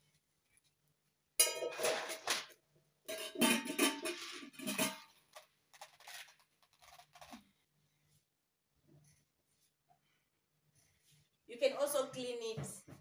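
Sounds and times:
metal pot and lid clattering: 1.4 - 5.2.

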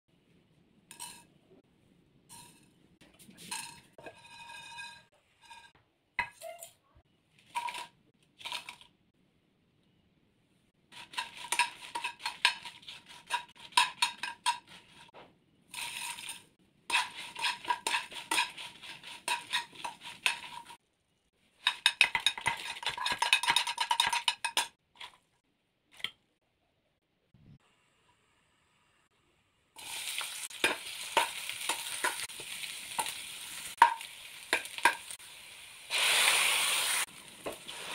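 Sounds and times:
spoon stirring spices in metal pan: 0.8 - 1.4, 2.3 - 6.4, 7.4 - 8.8, 10.9 - 25.4, 29.8 - 37.9.

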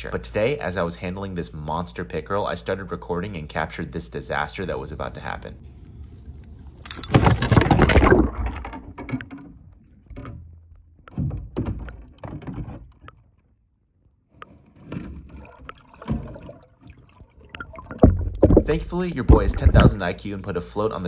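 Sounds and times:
muffled underwater thumps and knocks: 7.3 - 13.2, 14.4 - 20.1.

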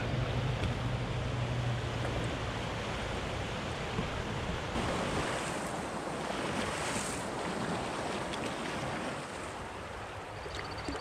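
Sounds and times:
low hum: 0.0 - 4.7
river water rushing and splashing: 0.0 - 11.0.

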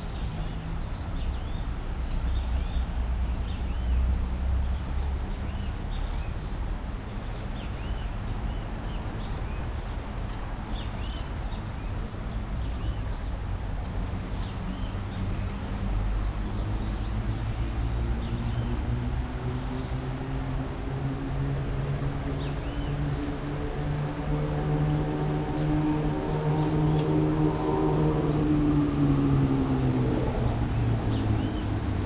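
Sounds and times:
low hum with several pitches: 2.8 - 32.0
thin high whine: 6.0 - 18.9.

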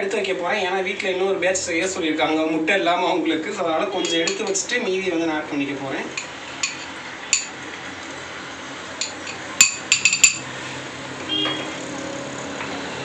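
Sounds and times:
metal spoon clinking on glass bowl: 4.0 - 4.6, 6.2 - 7.6, 9.0 - 10.5.

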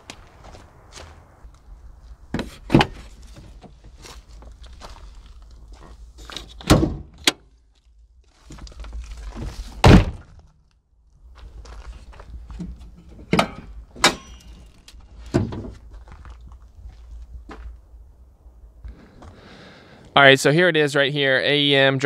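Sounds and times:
pickup door and hood latch clunks: 6.6 - 7.4, 13.3 - 14.5.

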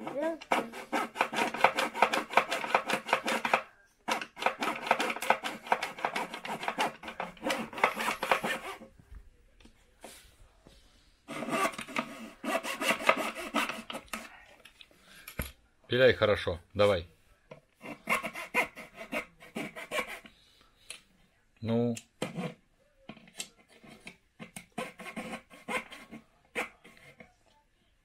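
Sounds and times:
hand saw cutting wood: 0.0 - 8.8, 11.3 - 14.1, 17.8 - 20.3, 24.7 - 26.8.

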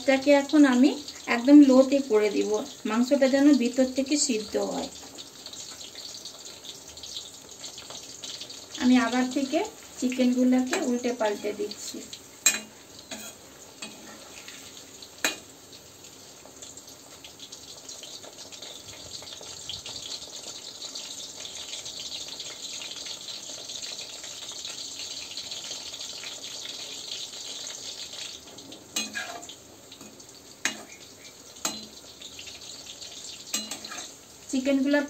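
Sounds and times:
food deep-frying in oil: 0.0 - 35.0
metal spoon clinking on pan: 12.4 - 14.0, 29.0 - 29.4, 31.6 - 32.0, 33.5 - 34.1.

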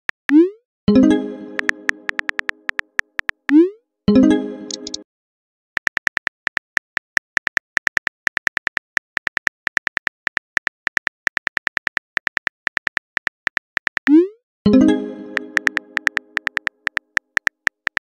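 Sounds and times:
message received chime: 0.9 - 2.6, 4.1 - 5.0, 14.7 - 16.5
phone keyboard typing clicks: 1.5 - 3.6, 4.7 - 5.0, 5.8 - 14.2, 15.3 - 18.0.

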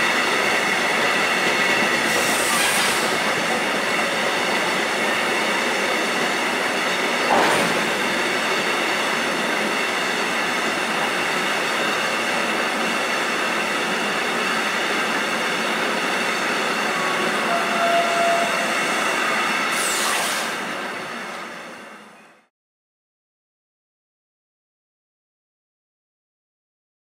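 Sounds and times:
train wheels rumbling on rail: 0.0 - 22.2
wheel squeal: 16.6 - 20.5.

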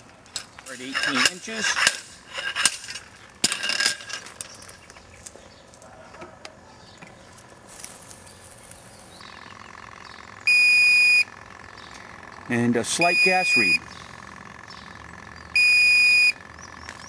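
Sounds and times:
gas detector pump humming: 8.8 - 17.0
loud electronic beep: 10.5 - 11.3, 13.0 - 13.8, 15.6 - 16.4.

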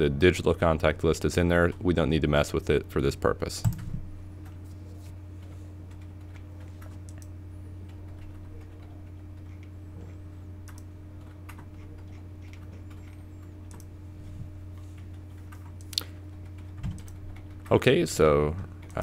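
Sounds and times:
steady low hum: 0.0 - 19.0
faint irregular clicks: 5.4 - 13.9, 14.8 - 17.8.

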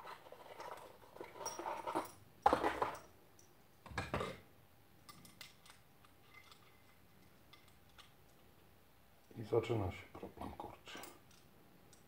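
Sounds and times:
metal tool parts clinking: 0.5 - 3.1, 5.1 - 8.1.

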